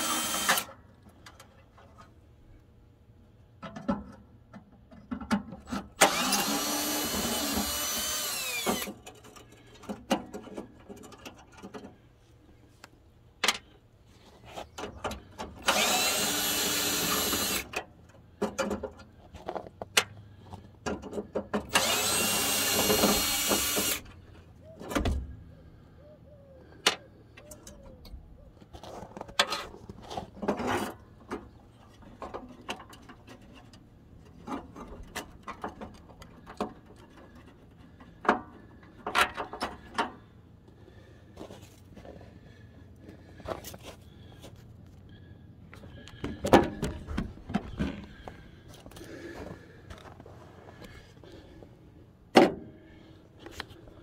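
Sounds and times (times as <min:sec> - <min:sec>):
cordless drill whining: 0:00.0 - 0:00.7, 0:06.0 - 0:09.0, 0:15.6 - 0:17.8, 0:21.7 - 0:24.2.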